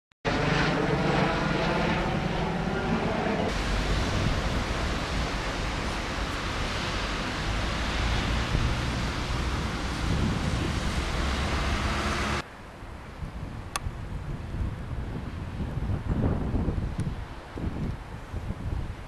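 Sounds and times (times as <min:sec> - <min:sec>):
train passing at speed: 0:00.4 - 0:12.4.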